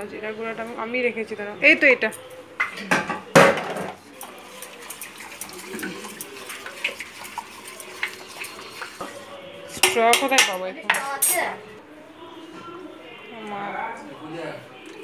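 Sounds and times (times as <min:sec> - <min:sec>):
metal spoon scraping steel bowl: 0:04.1 - 0:11.6.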